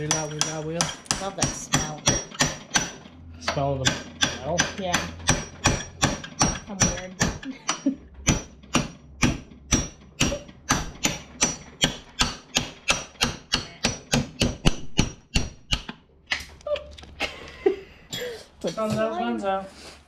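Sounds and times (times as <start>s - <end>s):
hammer striking metal punch: 0.0s - 16.0s.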